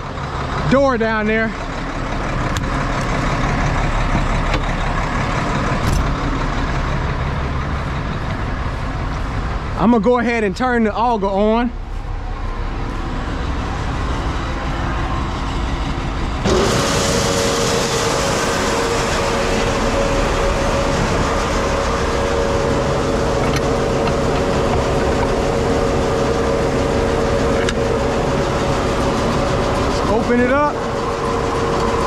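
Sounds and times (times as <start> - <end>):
low engine rumble: 0.0 - 32.0
loud rushing noise: 11.8 - 32.0
grain auger whining: 12.6 - 32.0.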